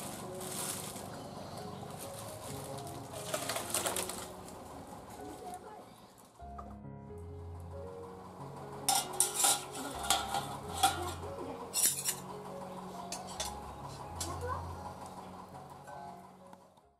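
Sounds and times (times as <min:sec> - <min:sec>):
metal spoon clinking on steel bowl: 0:08.9 - 0:12.2.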